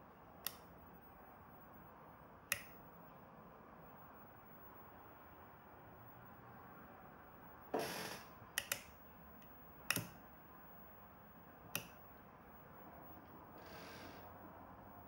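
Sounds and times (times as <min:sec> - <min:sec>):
faint background hiss: 0:00.0 - 0:15.0
sharp switch clicks: 0:00.4 - 0:00.7, 0:02.5 - 0:02.8, 0:08.6 - 0:10.2, 0:11.7 - 0:12.0.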